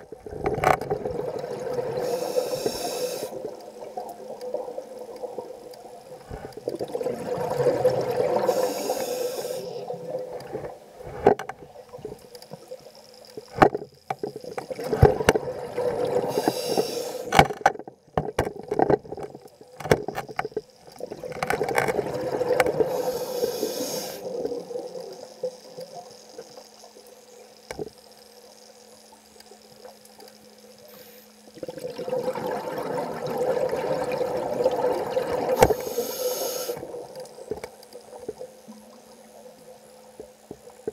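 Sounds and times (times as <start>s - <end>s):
regulator hiss on inhale: 1.9s - 3.5s, 8.3s - 11.3s, 16.2s - 17.4s, 22.8s - 24.5s, 30.8s - 31.5s, 35.5s - 37.0s
gurgling exhaust bubbles: 31.6s - 35.7s.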